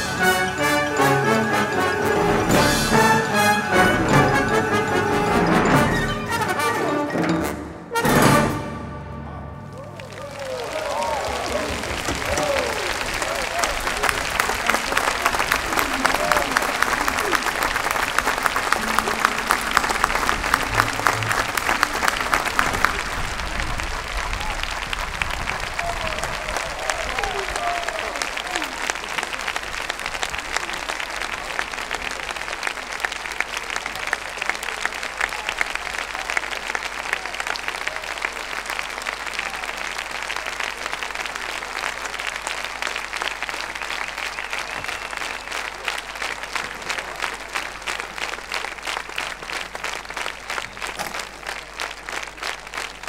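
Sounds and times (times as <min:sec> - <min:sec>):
audience applauding: 0:00.0 - 0:07.2, 0:09.6 - 0:53.0.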